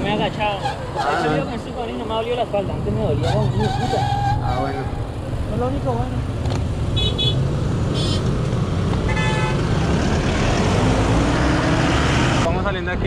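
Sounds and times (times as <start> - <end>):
road traffic: 0.0 - 13.0
vehicle passing close by: 7.4 - 12.5
high horn toots: 9.1 - 9.6.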